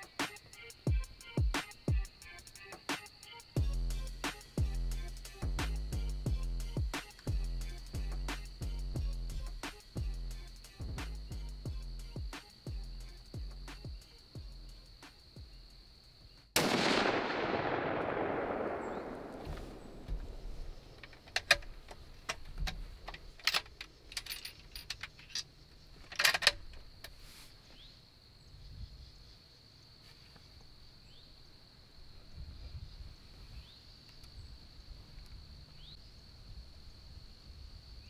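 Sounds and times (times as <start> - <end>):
rifle shot: 16.6 - 21.0
sharp clicks and rattles: 20.9 - 26.8.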